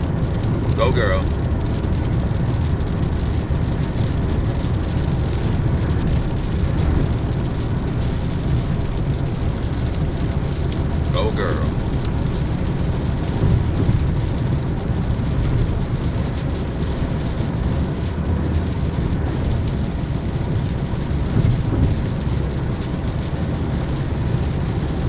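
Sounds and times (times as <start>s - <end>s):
car driving on wet highway: 0.0s - 25.0s.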